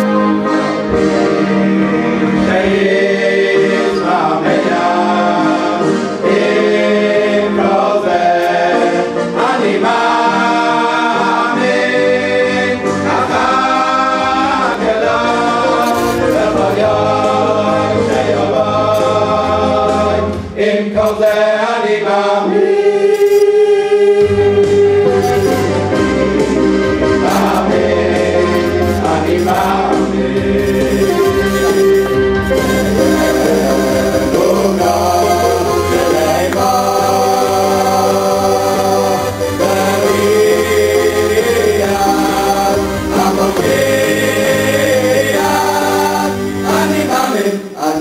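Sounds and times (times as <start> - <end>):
instrumental backing: 0.0 - 21.5, 24.2 - 48.0
choir singing in harmony: 0.0 - 48.0
held bass notes: 12.7 - 20.6, 24.2 - 47.1.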